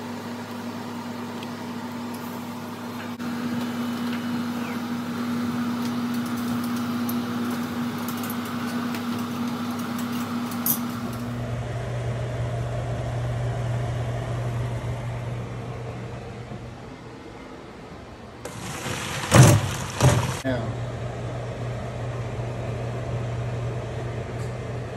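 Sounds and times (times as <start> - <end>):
mechanical hum: 0.0 - 24.9
water boiling in a pot: 18.5 - 20.4.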